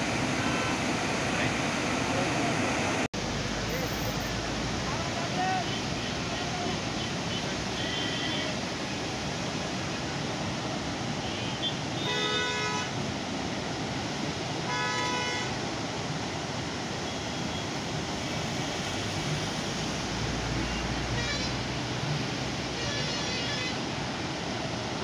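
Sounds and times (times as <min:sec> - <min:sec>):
floodwater roaring through spillway: 0:00.0 - 0:25.0
vehicle horn honking: 0:07.8 - 0:08.5, 0:11.3 - 0:12.9, 0:14.7 - 0:15.6, 0:21.1 - 0:21.7.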